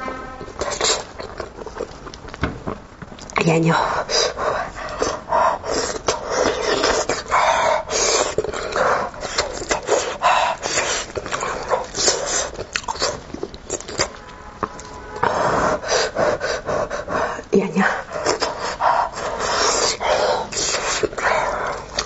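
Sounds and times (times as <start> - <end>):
person chewing and lip-smacking: 4.9 - 15.0, 18.1 - 22.0.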